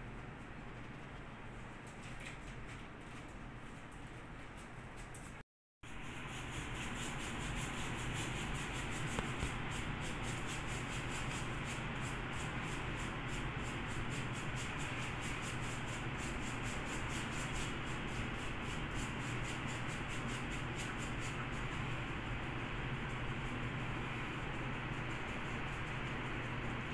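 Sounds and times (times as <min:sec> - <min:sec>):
paintbrush rubbing on plaster wall: 0:05.9 - 0:26.9.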